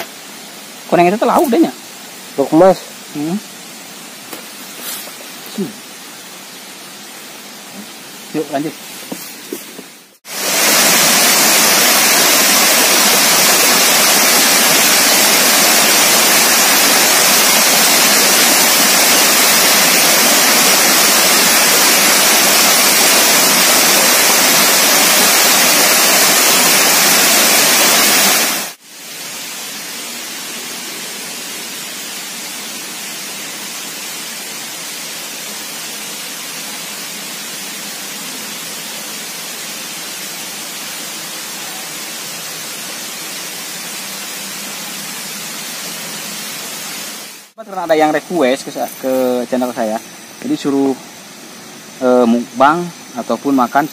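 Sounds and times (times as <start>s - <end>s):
steady hiss: 0.0s - 53.9s
water rushing over a weir: 9.8s - 53.3s.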